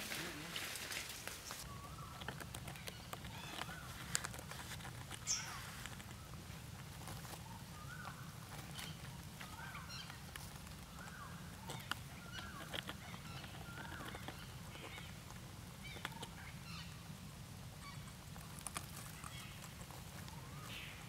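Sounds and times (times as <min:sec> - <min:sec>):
parrots chirping: 0:01.5 - 0:06.3, 0:07.0 - 0:17.1.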